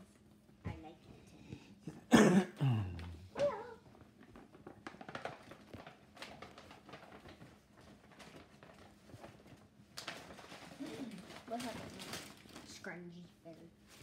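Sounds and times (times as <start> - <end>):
rustling and clicking of presents: 2.8 - 14.0
pet crying: 3.3 - 3.9.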